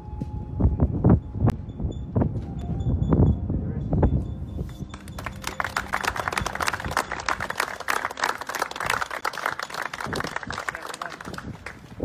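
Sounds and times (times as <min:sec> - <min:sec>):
people applauding: 0:04.8 - 0:12.0.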